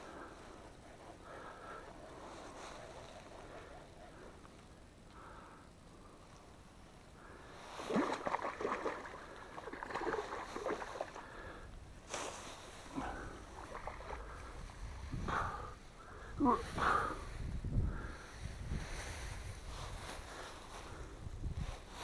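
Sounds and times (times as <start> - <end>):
fish thrashing and splashing water: 7.8 - 11.2, 13.5 - 14.3.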